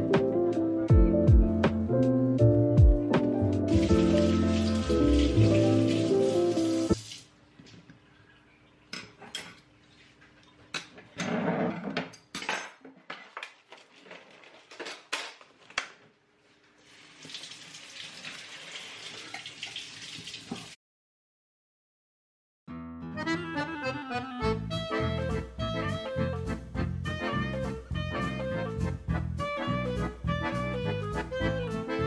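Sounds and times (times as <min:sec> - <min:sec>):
plastic packaging rustling: 0:13.5 - 0:15.8.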